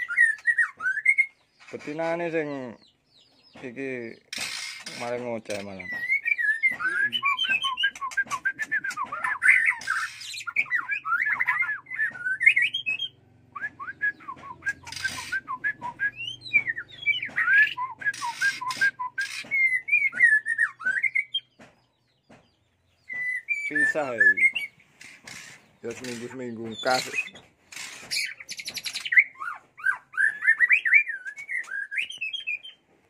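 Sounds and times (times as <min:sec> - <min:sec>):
bird singing whistled phrases: 0:00.0 - 0:01.4, 0:05.8 - 0:21.5, 0:23.0 - 0:24.8, 0:28.2 - 0:32.8.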